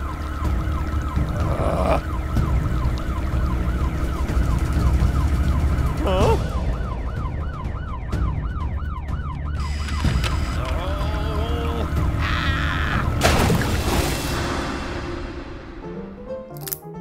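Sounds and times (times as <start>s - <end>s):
police siren yelping: 0.0s - 13.2s.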